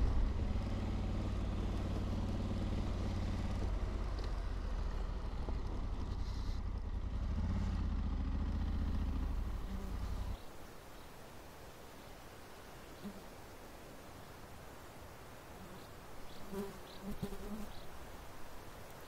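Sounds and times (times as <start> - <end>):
motorcycle engine running: 0.0 - 10.4
wind and road noise: 0.0 - 19.0.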